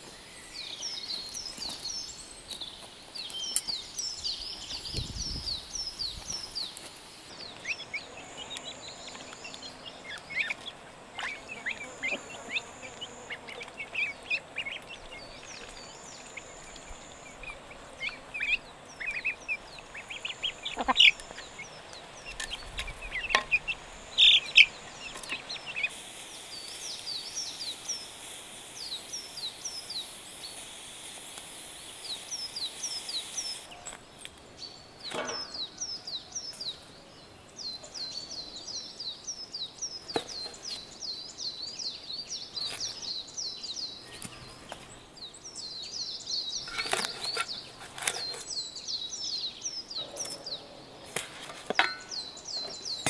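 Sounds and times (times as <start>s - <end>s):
chickens calling: 7.5s - 34.4s.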